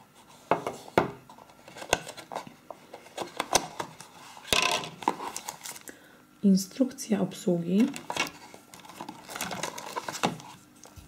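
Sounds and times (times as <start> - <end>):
cardboard rustling scrape: 7.9 - 10.7.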